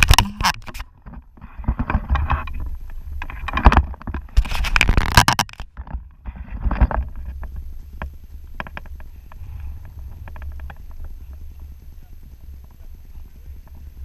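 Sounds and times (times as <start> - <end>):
wind buffeting microphone: 5.8 - 14.0.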